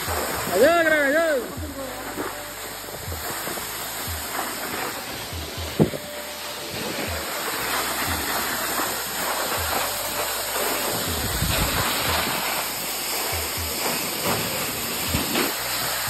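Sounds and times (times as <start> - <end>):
waterfall rushing: 0.0 - 16.0
low thumps: 1.4 - 6.2.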